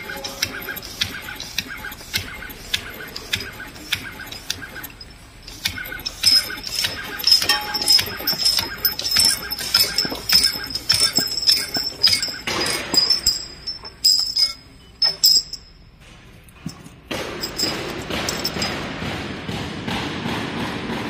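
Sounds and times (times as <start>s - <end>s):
machine whine: 0.0s - 16.0s
glass ampoules clicking and clinking: 4.4s - 15.8s, 16.5s - 18.8s.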